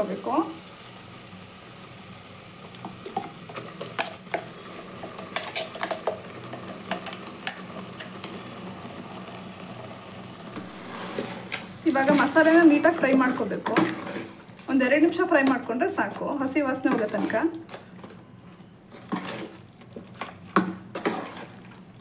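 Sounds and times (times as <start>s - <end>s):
meat and onions sizzling: 0.0s - 14.9s.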